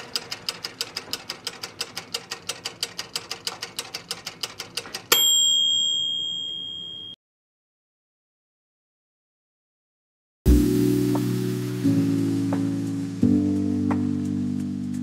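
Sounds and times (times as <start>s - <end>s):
rapid mechanical ticking: 0.0s - 5.1s
bright bell ding: 5.1s - 7.2s.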